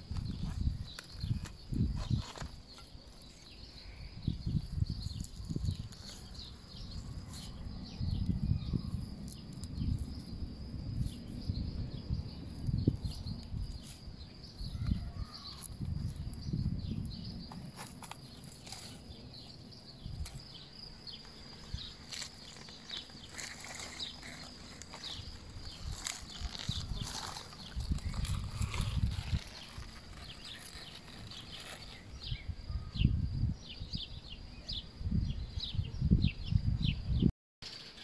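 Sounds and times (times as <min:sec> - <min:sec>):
birds chirping: 0:11.2 - 0:38.0.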